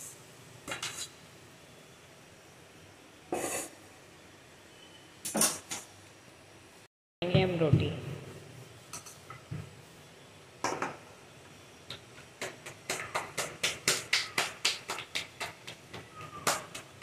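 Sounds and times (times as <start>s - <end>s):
dough slapped between palms: 11.9s - 17.0s.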